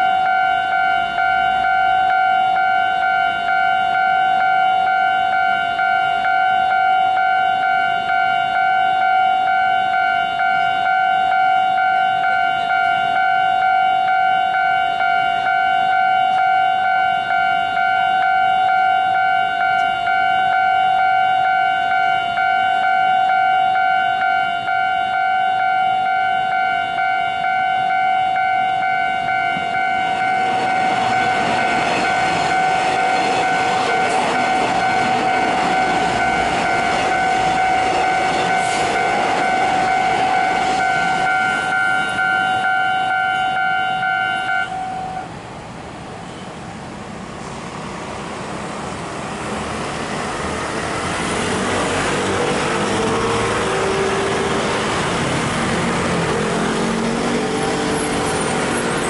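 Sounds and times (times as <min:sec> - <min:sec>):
level crossing warning bell ringing: 0:00.0 - 0:45.3
train rumbling over crossing: 0:00.0 - 0:59.0.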